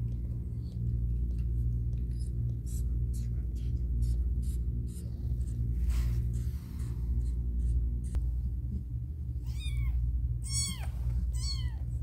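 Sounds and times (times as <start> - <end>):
newborn kitten mewing: 9.4 - 11.8.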